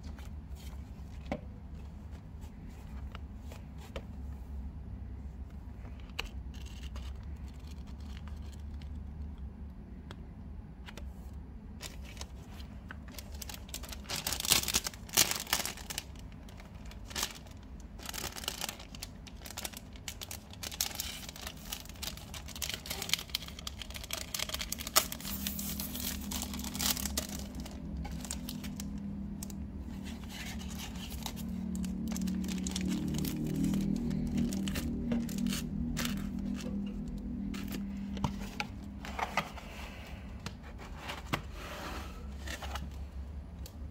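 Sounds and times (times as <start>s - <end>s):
plastic wrapping crinkling: 11.8s - 39.2s.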